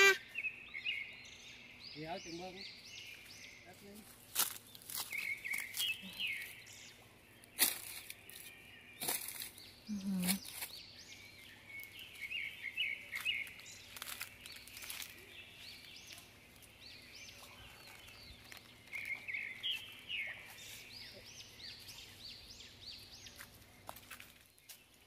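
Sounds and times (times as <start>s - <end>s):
small birds chirping: 0.0s - 25.0s
twigs snapping: 4.3s - 6.0s, 7.4s - 9.6s, 13.1s - 16.3s, 17.8s - 19.7s.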